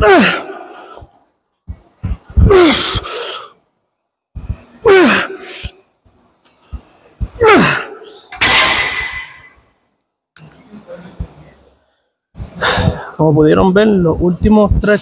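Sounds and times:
man grunting with effort: 2.3s - 3.4s, 7.4s - 8.2s.

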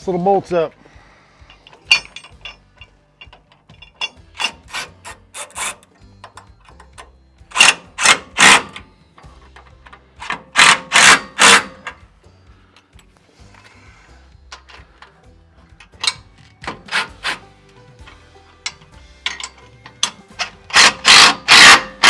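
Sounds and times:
ratchet wrench clicking: 1.6s - 8.9s, 18.6s - 22.0s.

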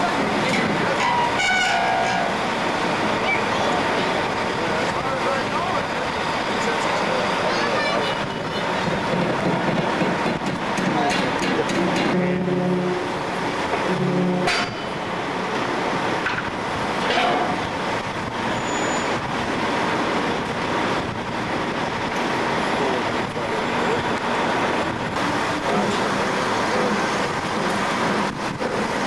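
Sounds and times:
ferry engines and vehicles running: 0.0s - 29.0s
low horn tone: 1.0s - 2.3s, 12.1s - 13.2s, 13.8s - 14.9s.

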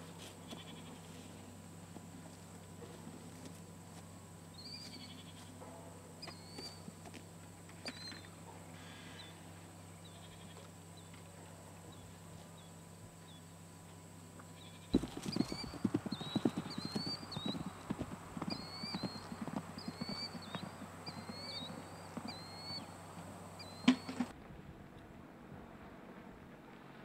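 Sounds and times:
short chirping call: 14.6s - 24.3s
horse hoofbeats galloping: 14.9s - 24.3s.

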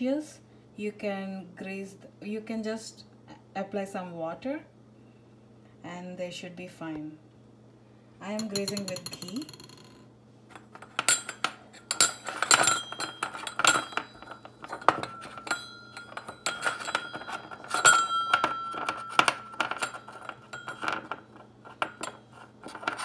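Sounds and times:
cups ringing: 8.4s - 23.0s
steel tumblers clinking: 8.4s - 23.0s.

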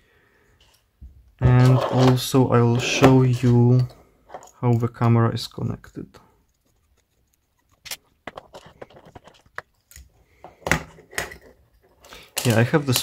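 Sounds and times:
plastic clicks and rustles: 6.5s - 10.2s.

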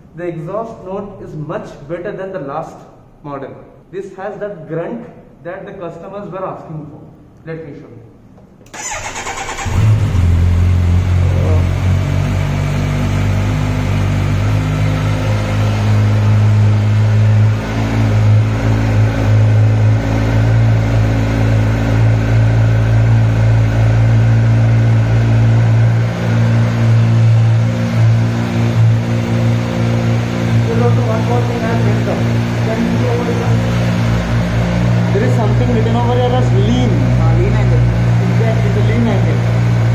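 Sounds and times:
motorcycle engine starting and idling: 8.7s - 38.5s.

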